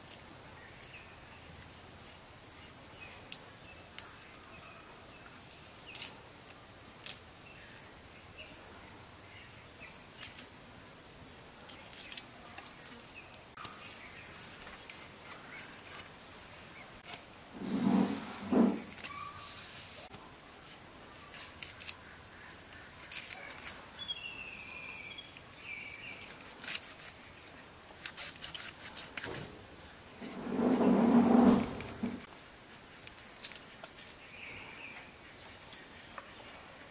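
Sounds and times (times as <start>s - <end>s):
bird chirping: 24.0s - 26.4s
fish scaling scrapes and clicks: 28.0s - 29.5s.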